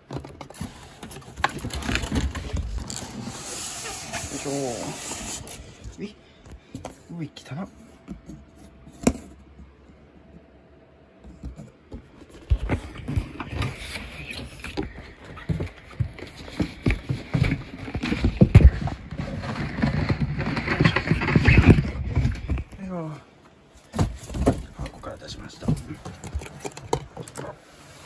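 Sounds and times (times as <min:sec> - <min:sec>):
cardboard box scraping and rustling: 0:00.2 - 0:06.0, 0:11.5 - 0:22.7.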